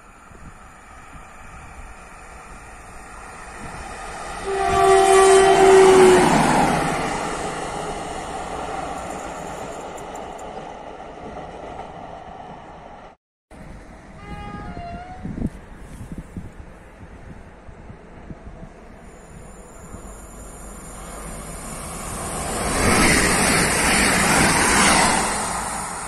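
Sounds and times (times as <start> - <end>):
locomotive engine and wheel noise: 0.0 - 5.4, 6.5 - 26.0
locomotive horn: 4.4 - 6.8, 14.1 - 15.4.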